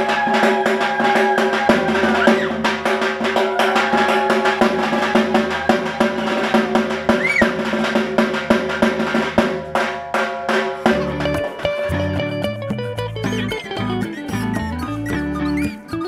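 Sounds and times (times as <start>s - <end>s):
barrel drum fast roll: 0.0s - 11.8s.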